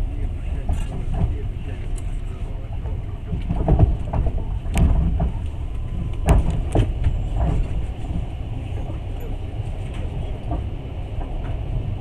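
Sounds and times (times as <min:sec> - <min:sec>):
train carriage rumble: 0:00.0 - 0:12.0
wheels knocking on track: 0:02.8 - 0:09.3.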